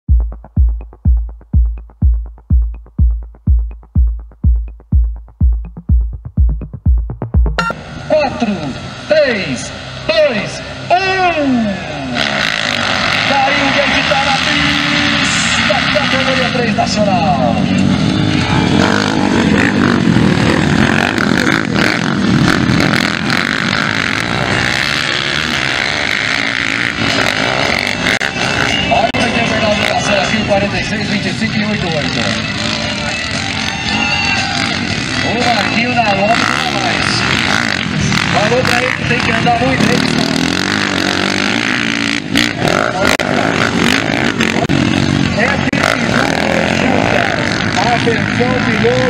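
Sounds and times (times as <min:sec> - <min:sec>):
heavy kick drum: 0:00.1 - 0:07.7
electronic dance music: 0:00.1 - 0:07.8
light ticking percussion: 0:00.1 - 0:07.8
motocross bike engines revving: 0:07.6 - 0:49.0.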